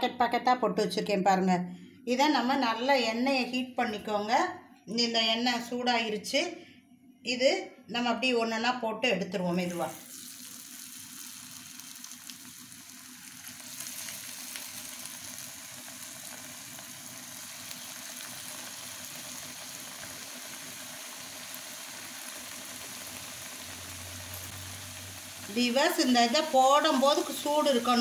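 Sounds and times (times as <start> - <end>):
pastries sizzling in hot oil: 9.6 - 28.0.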